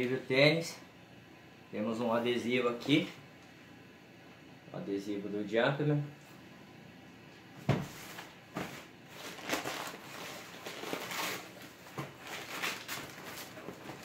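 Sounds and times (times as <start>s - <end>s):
tissue paper crinkling: 9.1s - 14.0s.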